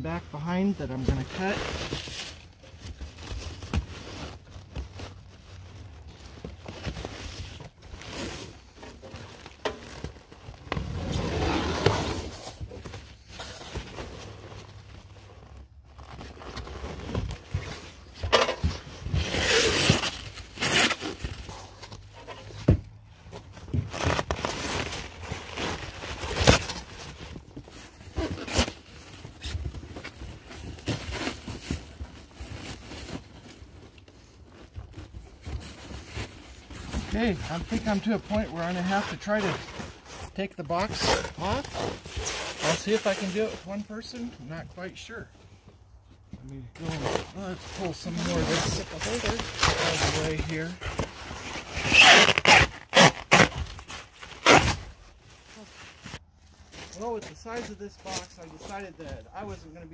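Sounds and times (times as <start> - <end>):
plastic wrap crinkling and tearing: 0.6 - 11.3, 23.7 - 44.2, 46.8 - 59.5.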